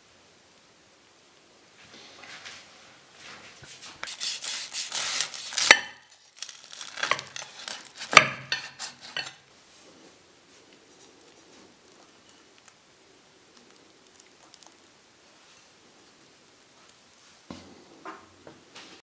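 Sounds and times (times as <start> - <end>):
knife sawing through crunchy burger: 4.1 - 5.8, 6.6 - 9.4.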